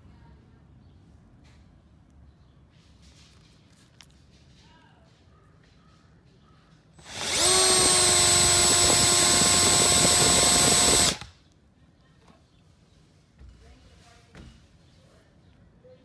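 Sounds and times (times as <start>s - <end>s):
cordless drill spinning brush: 7.0s - 11.3s.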